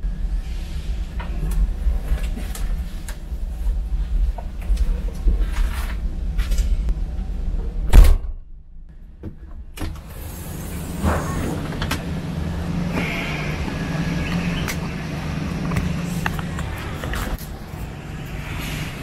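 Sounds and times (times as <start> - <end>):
car engine running: 10.0 - 17.4.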